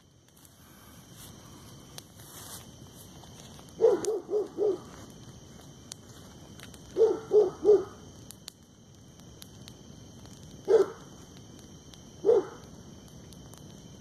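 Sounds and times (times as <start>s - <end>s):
brush fire crackling: 0.0s - 14.0s
dog barking: 3.8s - 4.8s, 7.0s - 8.0s, 10.7s - 11.0s, 12.2s - 12.6s.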